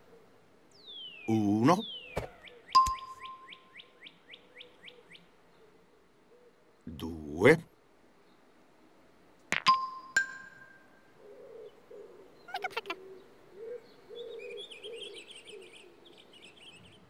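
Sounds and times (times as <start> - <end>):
birds chirping trills: 0.7 - 5.8, 9.7 - 17.0
stones clacking together: 9.5 - 9.9
bird cooing: 11.2 - 16.6.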